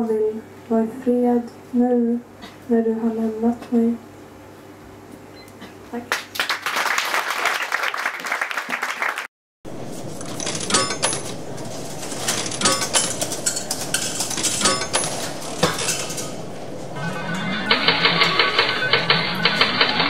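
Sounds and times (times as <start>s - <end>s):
audience applauding: 6.1s - 9.3s.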